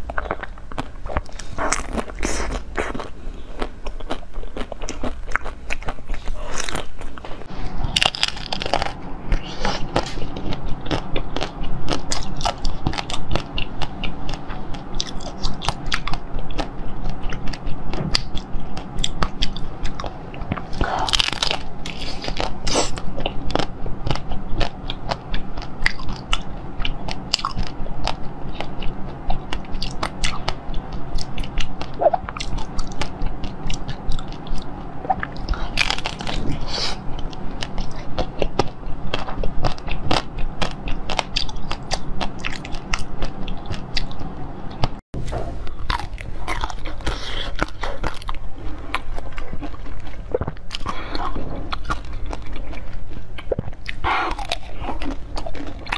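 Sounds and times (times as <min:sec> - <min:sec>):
crunching frozen jelly: 0:00.0 - 0:44.3, 0:45.6 - 0:55.9
chewing: 0:00.0 - 0:45.0, 0:45.6 - 0:55.9
steady low hum: 0:00.0 - 0:55.9.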